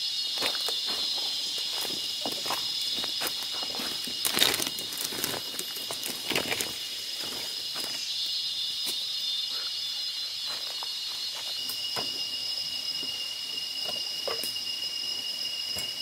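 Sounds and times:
high insect drone: 0:00.0 - 0:16.0
footsteps crunching dry leaves: 0:00.4 - 0:08.1.

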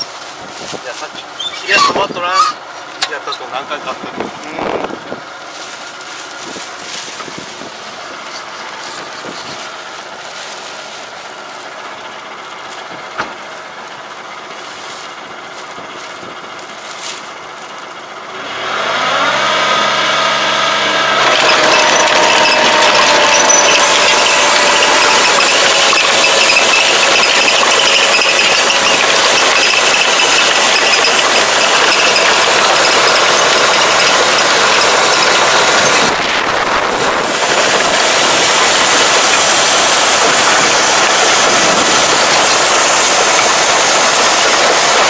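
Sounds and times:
tractor engine running: 0:00.0 - 0:45.0.

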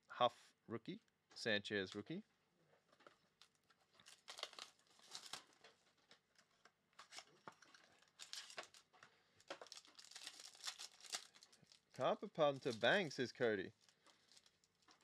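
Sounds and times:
foil wrapping crinkling and tearing: 0:03.4 - 0:06.2, 0:07.0 - 0:15.0.

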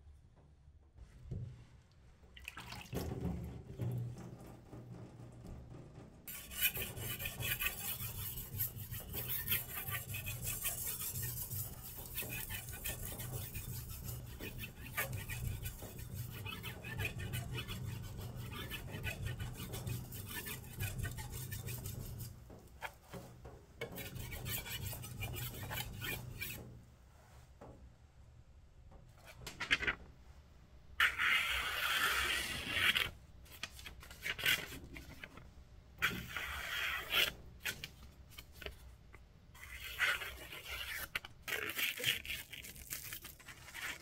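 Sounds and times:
knife scraping on whetstone: 0:06.3 - 0:23.0, 0:23.8 - 0:26.6, 0:31.0 - 0:33.1, 0:36.0 - 0:37.9, 0:39.6 - 0:44.0.

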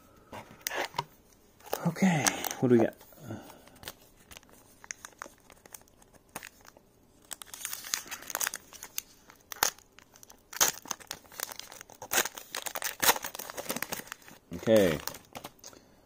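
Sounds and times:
foil wrapper crinkling and tearing: 0:03.7 - 0:15.6.

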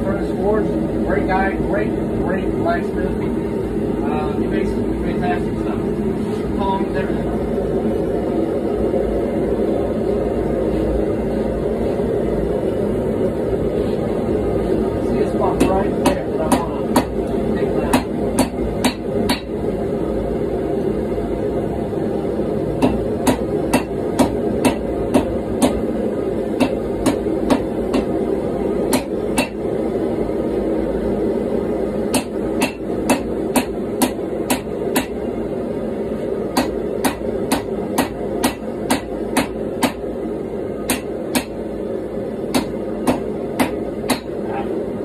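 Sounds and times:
gas forge running: 0:00.0 - 0:45.0
hammer striking on anvil: 0:15.6 - 0:17.2, 0:17.9 - 0:19.5, 0:22.8 - 0:25.8, 0:26.6 - 0:28.1, 0:28.9 - 0:29.6, 0:32.1 - 0:35.2, 0:36.6 - 0:40.0, 0:40.8 - 0:41.6, 0:42.5 - 0:44.4.

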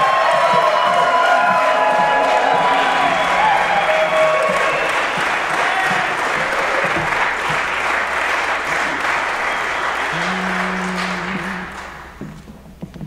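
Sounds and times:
audience applause: 0:00.0 - 0:12.3
pitch pipe note: 0:10.1 - 0:12.1.

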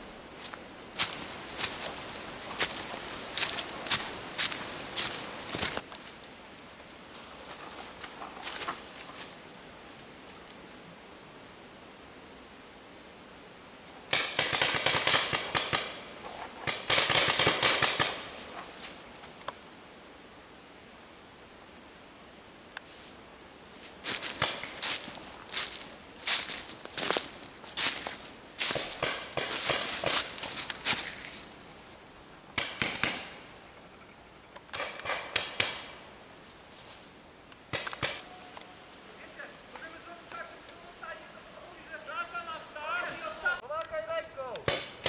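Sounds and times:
paintball marker shots: 0:14.1 - 0:16.0, 0:32.6 - 0:33.4, 0:34.7 - 0:36.0, 0:44.6 - 0:45.0
paintball markers firing: 0:14.1 - 0:16.0, 0:16.7 - 0:18.3.

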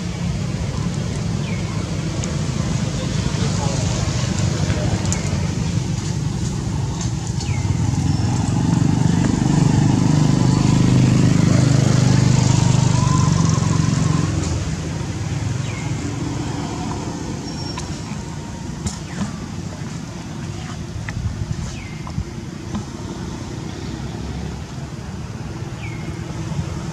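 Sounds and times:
motor vehicle passing: 0:02.4 - 0:19.2.

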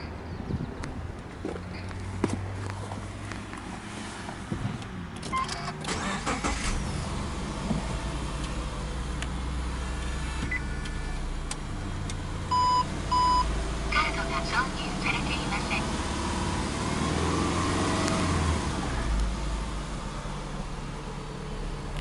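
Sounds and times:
car engine starting and idling: 0:00.7 - 0:22.0
short car beeps: 0:12.5 - 0:13.5.

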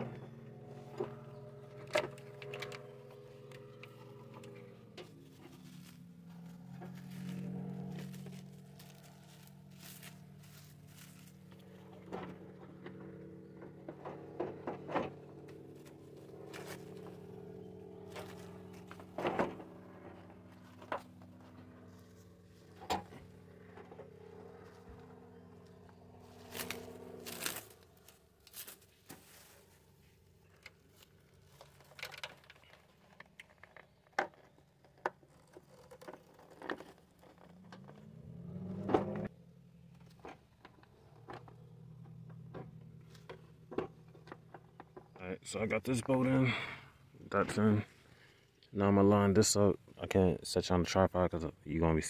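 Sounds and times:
steady low motor hum: 0:00.0 - 0:52.0
clicks and knocks of handling: 0:30.5 - 0:39.2.

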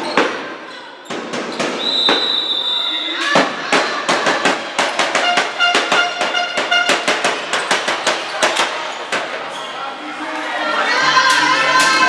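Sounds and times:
shoe squeaks: 0:00.0 - 0:03.3, 0:05.2 - 0:10.0
sharp knocks and claps: 0:03.3 - 0:09.4.

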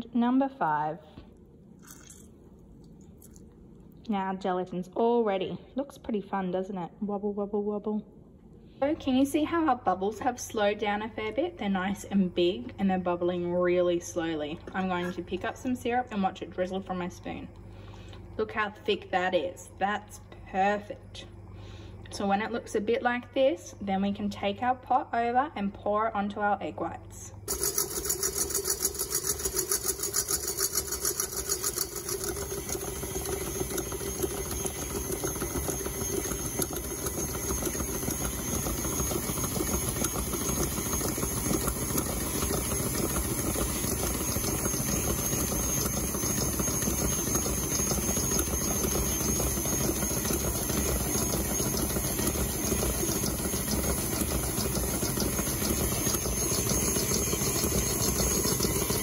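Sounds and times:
stand mixer whisking: 0:27.5 - 0:59.0.

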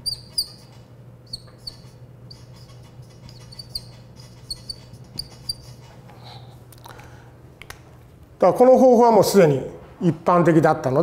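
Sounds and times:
marker squeaking on whiteboard: 0:00.0 - 0:06.1
low room hum: 0:00.0 - 0:11.0.

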